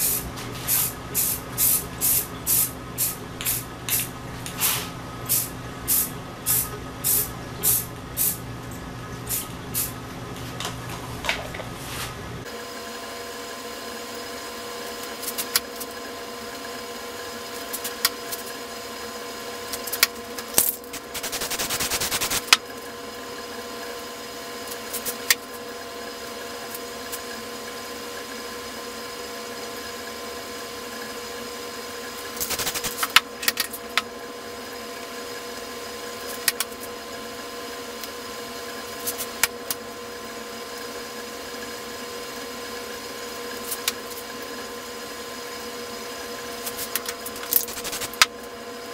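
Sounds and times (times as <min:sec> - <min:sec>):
spray paint can hissing: 0:00.0 - 0:08.4, 0:20.9 - 0:22.5, 0:32.4 - 0:33.1, 0:47.6 - 0:48.2
steady hum: 0:00.0 - 0:12.6, 0:20.4 - 0:22.6, 0:32.3 - 0:33.4, 0:47.3 - 0:48.4.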